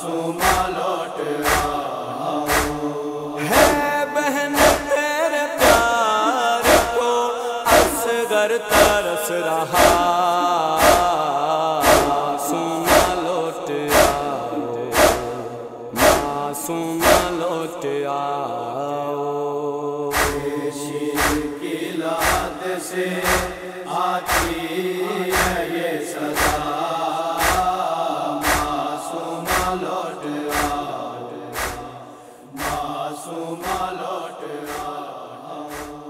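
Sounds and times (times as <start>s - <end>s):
chanted drone of voices: 0.0s - 36.0s
chest-beating thumps: 2.5s - 2.8s, 4.6s - 4.9s, 5.6s - 5.9s, 6.6s - 7.0s, 7.7s - 8.1s, 8.7s - 9.0s, 9.8s - 10.2s, 10.8s - 11.2s, 11.8s - 12.3s, 12.9s - 13.2s, 13.9s - 14.3s, 14.9s - 15.4s, 16.0s - 16.4s, 17.0s - 17.3s, 20.1s - 20.5s, 21.2s - 21.5s, 24.3s - 24.6s, 28.4s - 28.7s, 31.6s - 31.8s.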